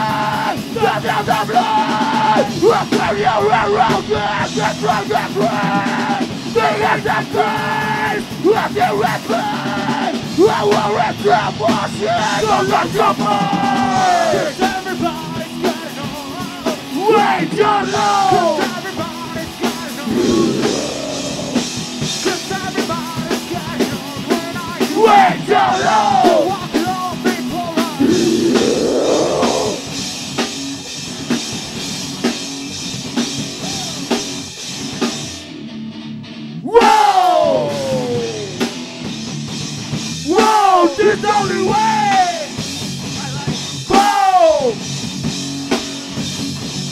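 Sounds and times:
sung and shouted vocals: 0.0 - 15.1, 16.9 - 18.8, 20.0 - 21.8, 24.8 - 26.8, 27.8 - 29.9, 36.7 - 38.6, 40.3 - 42.5
rock band playing live: 0.0 - 46.9.

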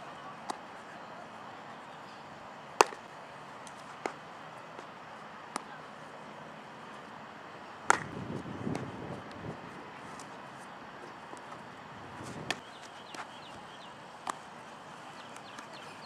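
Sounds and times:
baseball knocks: 2.8 - 3.1, 7.8 - 8.9
jumble of noise: 2.8 - 16.0.

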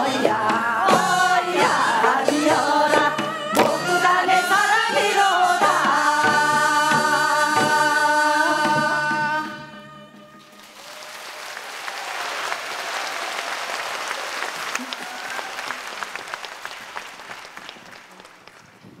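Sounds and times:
audience applauding: 10.4 - 19.0.

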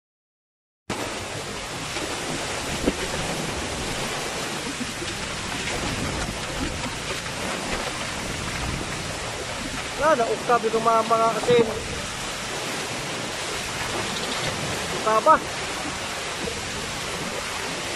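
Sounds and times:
storm wind and driving rain: 0.9 - 17.9.

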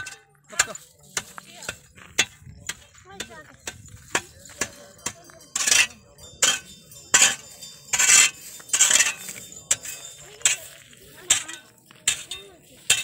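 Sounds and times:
metal percussion clinks: 3.2 - 13.0.

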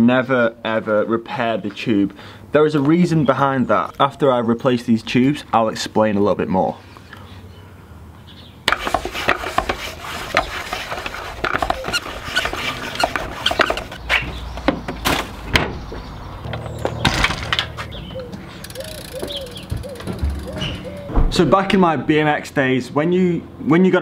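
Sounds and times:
rubber tyre squeaking and scraping: 8.7 - 14.6, 17.7 - 21.2.

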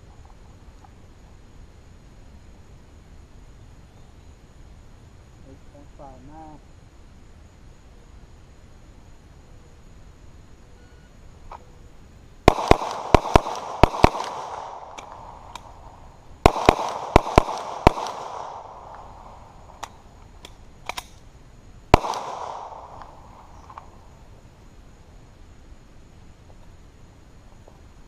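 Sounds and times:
pistol shots with echo: 12.5 - 19.9, 21.9 - 23.5.

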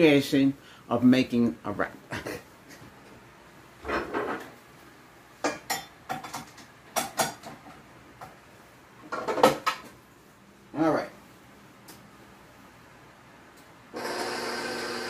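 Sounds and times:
dishes and utensils clattering: 5.4 - 7.9.

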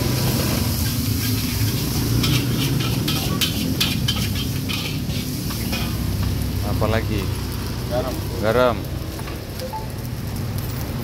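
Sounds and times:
food sizzling: 0.0 - 11.0
metal spatula scraping wok: 0.3 - 6.2.

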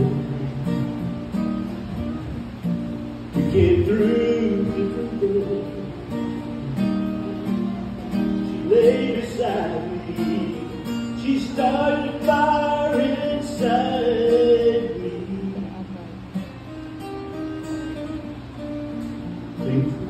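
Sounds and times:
acoustic guitar strummed: 0.0 - 20.0
man singing country song: 3.3 - 16.0, 19.6 - 20.0.

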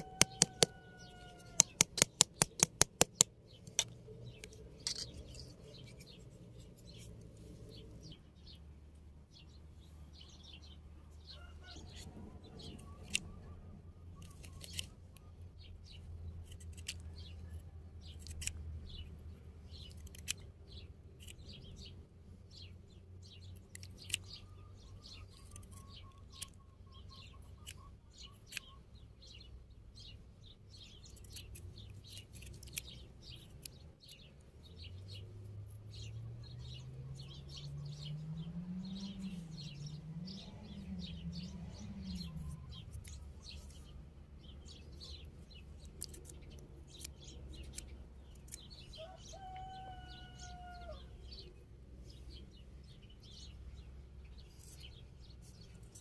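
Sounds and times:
small birds chirping: 0.0 - 56.0
sharp clicks: 0.2 - 0.8, 1.5 - 5.5
low drone wavering in pitch: 34.9 - 43.8.

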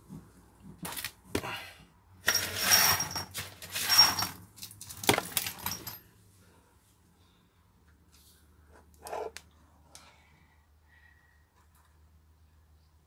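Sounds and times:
small metal parts clattering: 2.2 - 6.1.

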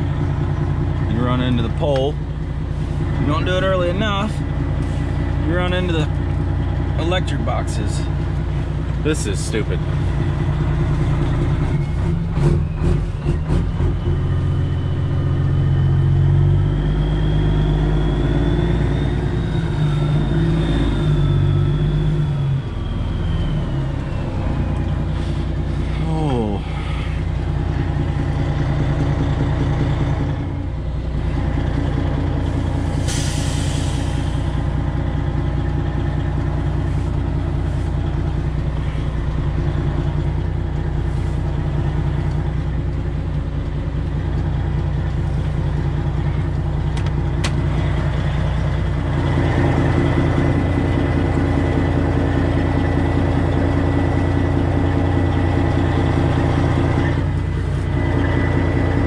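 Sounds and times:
truck diesel engine running: 0.0 - 59.0
short air hiss: 32.8 - 34.3.

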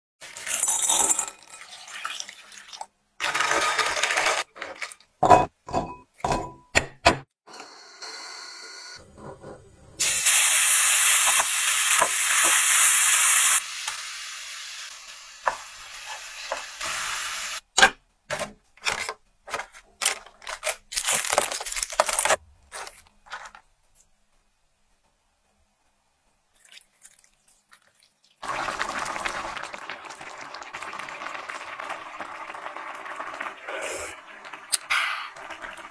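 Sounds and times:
utensils knocking on bowls and pans: 5.2 - 7.1
garlic sizzling in hot oil: 10.0 - 17.6, 28.4 - 33.7.

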